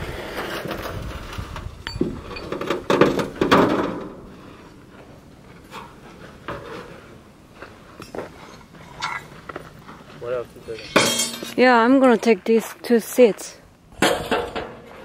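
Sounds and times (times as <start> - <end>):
sheet metal clattering on scrap pile: 10.7 - 12.1, 14.0 - 15.0.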